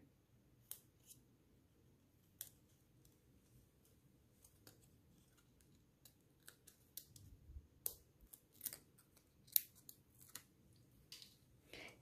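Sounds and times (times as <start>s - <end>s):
paper crinkles and clicks: 4.3s - 11.3s.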